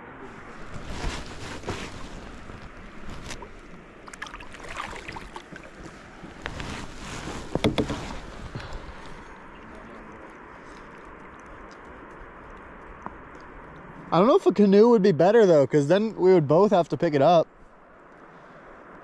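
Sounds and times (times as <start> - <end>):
wind on microphone: 0.2 - 10.2
knocks and splashes against kayak hull: 1.6 - 9.2.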